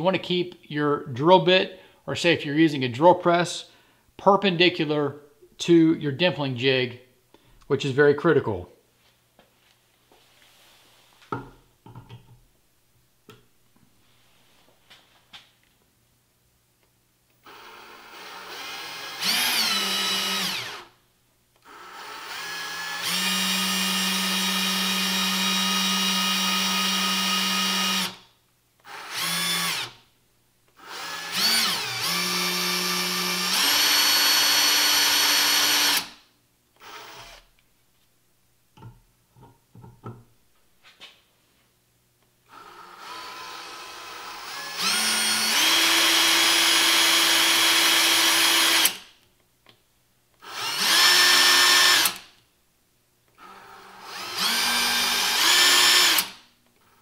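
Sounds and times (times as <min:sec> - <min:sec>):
cordless drill whining: 0:17.4 - 0:20.9, 0:21.6 - 0:28.2, 0:28.8 - 0:30.0, 0:30.8 - 0:36.2, 0:36.8 - 0:37.5, 0:42.5 - 0:49.1, 0:50.4 - 0:52.3, 0:53.4 - 0:56.4.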